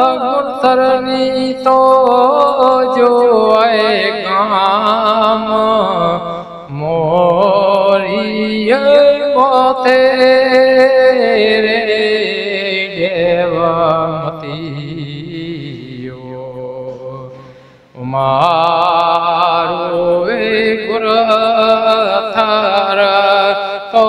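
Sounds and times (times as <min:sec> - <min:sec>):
person chanting long wavering notes: 0:00.0 - 0:08.9.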